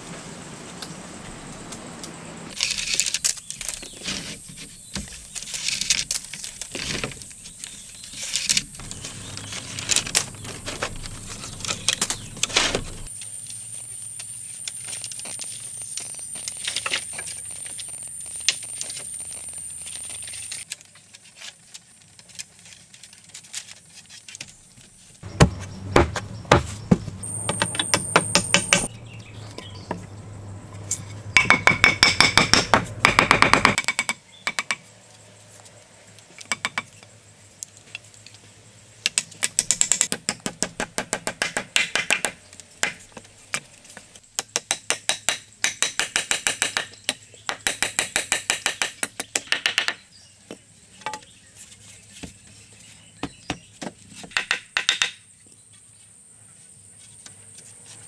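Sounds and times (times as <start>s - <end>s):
wooden poles knocking and clattering: 2.6s - 13.1s, 24.4s - 28.9s, 31.4s - 34.8s, 53.2s - 55.2s.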